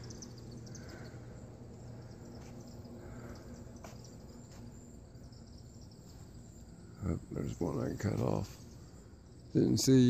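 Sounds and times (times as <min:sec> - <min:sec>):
faint crickets chirping: 0:00.0 - 0:10.0
steady low hum: 0:00.0 - 0:10.0.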